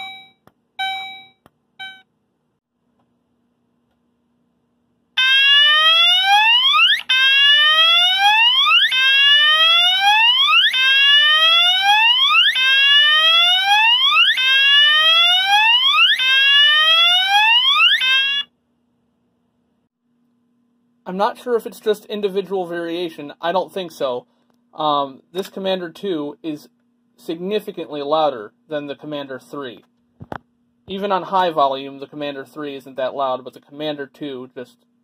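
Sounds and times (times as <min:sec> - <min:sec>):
fire alarm whoop tone: 0:05.2 - 0:18.5.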